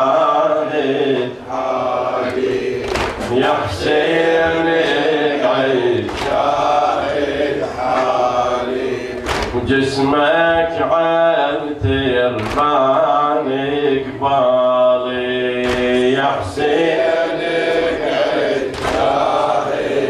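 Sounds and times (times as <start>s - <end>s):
sharp slap: 2.8s - 3.4s, 6.1s - 6.6s, 9.2s - 9.6s, 12.4s - 12.8s, 15.6s - 16.1s, 18.7s - 19.4s
man chanting a lament: 3.2s - 6.5s, 9.5s - 17.0s.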